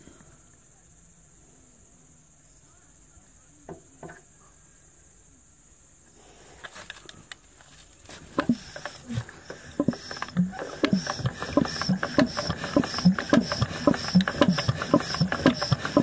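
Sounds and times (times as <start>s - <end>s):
crickets trilling: 0.0s - 16.0s
sharp clicks and knocks: 8.3s - 16.0s.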